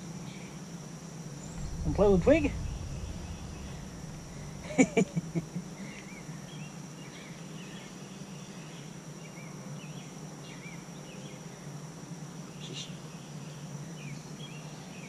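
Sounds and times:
high insect whine: 0:01.3 - 0:05.9
steady low hum: 0:01.3 - 0:06.0.

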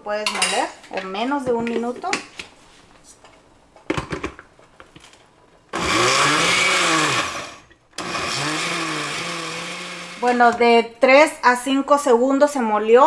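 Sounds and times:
blender motor running: 0:05.8 - 0:10.4.

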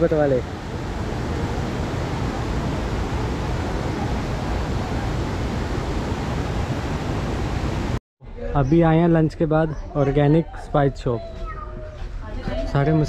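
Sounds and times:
steady rushing rumble: 0:00.0 - 0:08.0.

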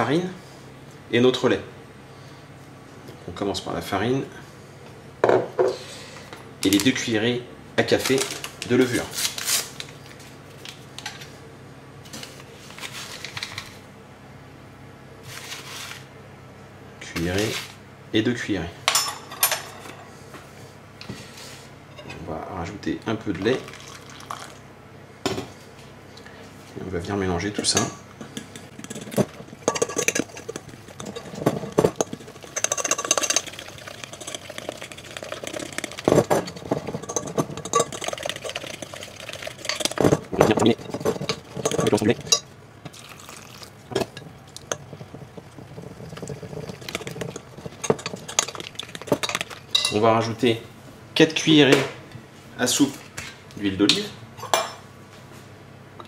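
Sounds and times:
fork scraping glass bowl: 0:28.8 - 0:42.5, 0:43.9 - 0:49.9.

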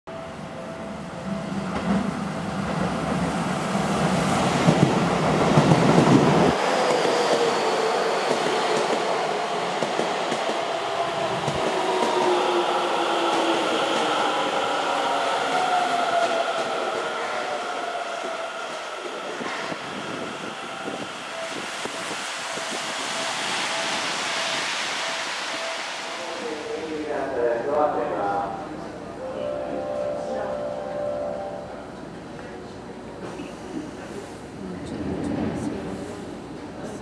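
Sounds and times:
train wheels rolling: 0:04.0 - 0:27.0.

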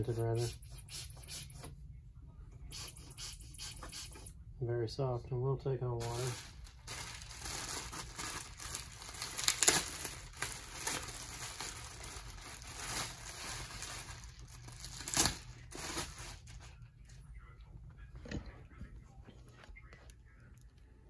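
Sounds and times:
bubble wrap crinkling: 0:06.0 - 0:16.9.

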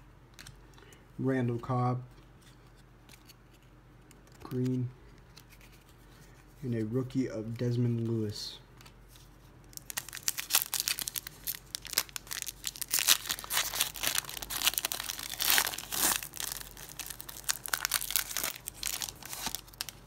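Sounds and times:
foil wrapper tearing and crinkling: 0:09.7 - 0:20.0.

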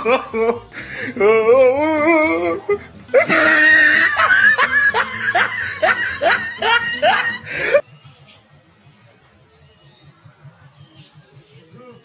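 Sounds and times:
outburst of laughter: 0:02.7 - 0:07.8.

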